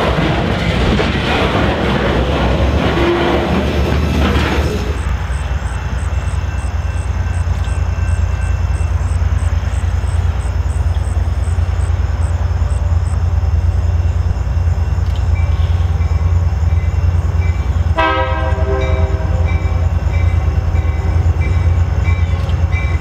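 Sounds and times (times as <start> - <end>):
diesel locomotives rumbling: 0.0 - 23.0
freight train clattering past: 0.0 - 23.0.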